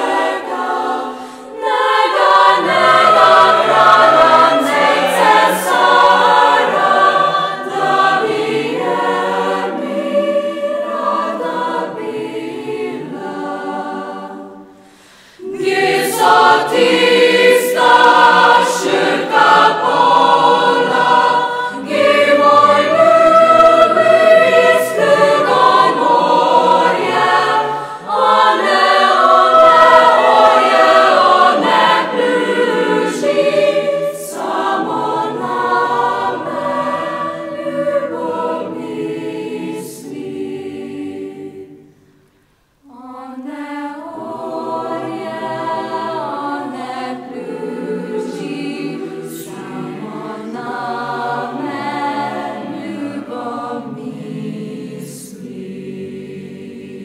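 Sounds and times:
youth choir singing: 0:00.0 - 0:42.2, 0:42.8 - 0:57.0.

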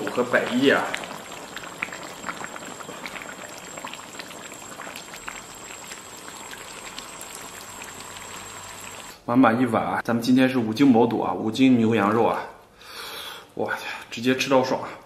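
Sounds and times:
broth bubbling in a pot: 0:00.0 - 0:09.2.

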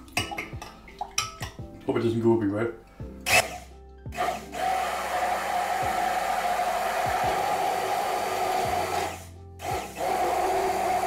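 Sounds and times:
stick blender whizzing: 0:03.3 - 0:11.0.

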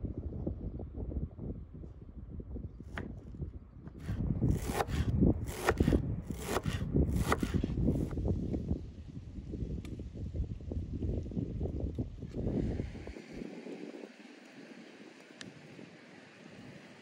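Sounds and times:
knife chopping on wooden board: 0:04.0 - 0:07.7.

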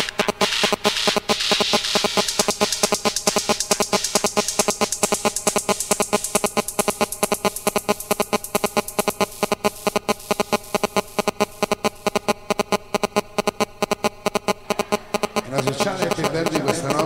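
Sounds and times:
electronic dance music: 0:00.0 - 0:17.0.

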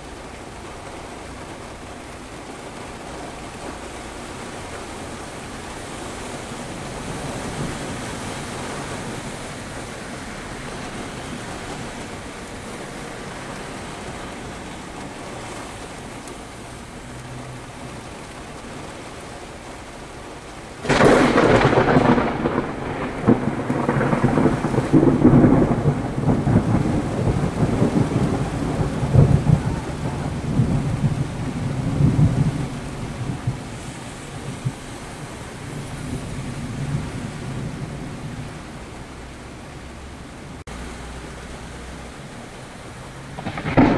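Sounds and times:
rain hiss on a car: 0:00.0 - 0:43.9
rumbling thunderclap: 0:20.8 - 0:34.9, 0:43.2 - 0:43.9.

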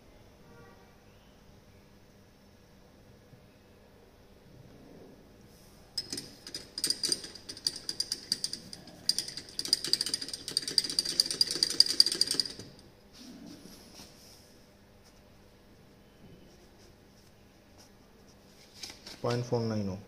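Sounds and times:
glass rod clinking in a beaker: 0:06.0 - 0:12.8.

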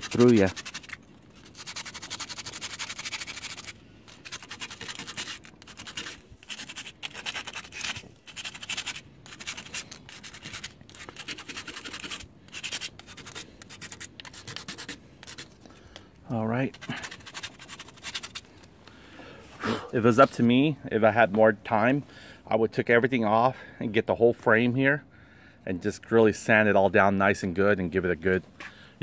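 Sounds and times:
sandpaper scratching metal: 0:00.0 - 0:15.5, 0:16.7 - 0:18.5.

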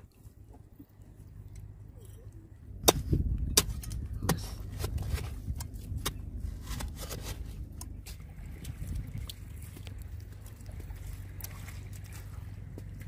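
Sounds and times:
hoe chopping into soil: 0:02.8 - 0:07.3
hoe scraping soil: 0:03.1 - 0:08.3.

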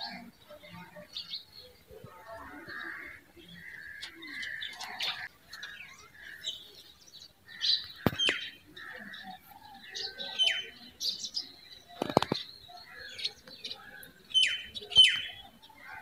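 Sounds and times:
birds chirping and twittering: 0:00.0 - 0:16.0
sharp clicks: 0:07.8 - 0:08.5, 0:12.0 - 0:12.5.

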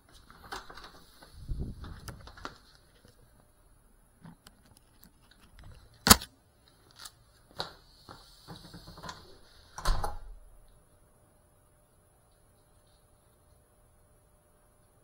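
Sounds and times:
sharp loud click: 0:06.0 - 0:06.3.

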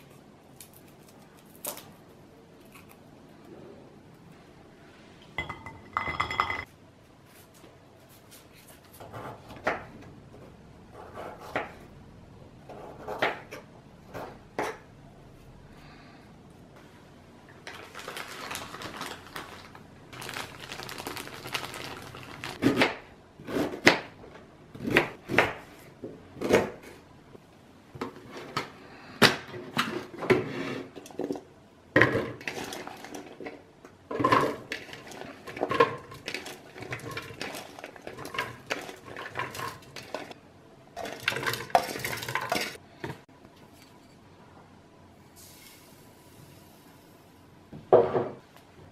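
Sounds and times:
plastic rustling: 0:17.6 - 0:22.6.

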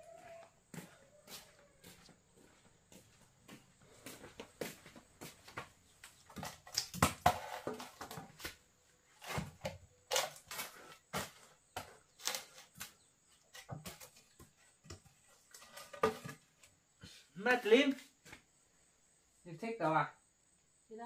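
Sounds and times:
footsteps in rubber sandals: 0:00.0 - 0:15.6
firewood logs knocking and scraping: 0:05.6 - 0:16.8.

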